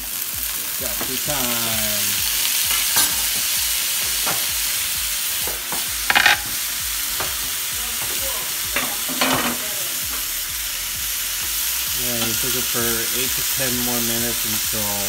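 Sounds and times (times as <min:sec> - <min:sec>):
food sizzling in frying pan: 0:00.0 - 0:15.0
pan rattling on burner grate: 0:06.1 - 0:06.6.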